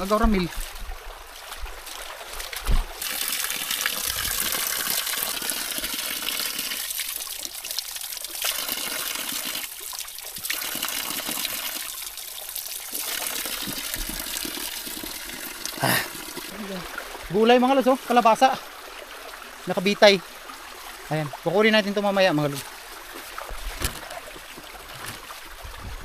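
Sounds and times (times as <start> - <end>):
water pouring onto rocks: 2.4 - 18.2
low thump: 2.6 - 2.9.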